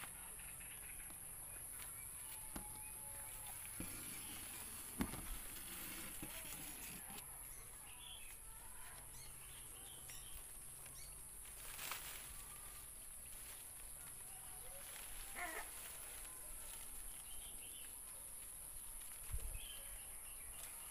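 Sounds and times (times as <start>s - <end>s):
bird chirps: 7.4s - 11.2s.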